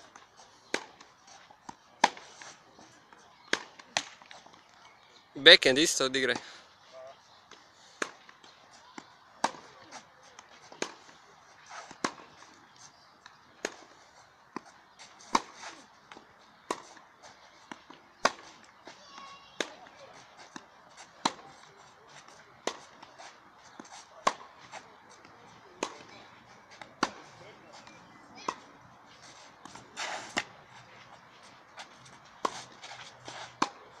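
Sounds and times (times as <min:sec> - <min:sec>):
tennis balls struck by rackets: 0:00.1 - 0:04.7, 0:07.4 - 0:34.0
tennis racket hitting ball: 0:14.6 - 0:17.0, 0:20.4 - 0:25.2, 0:25.8 - 0:26.1, 0:26.7 - 0:28.6, 0:29.2 - 0:31.0, 0:31.8 - 0:33.8.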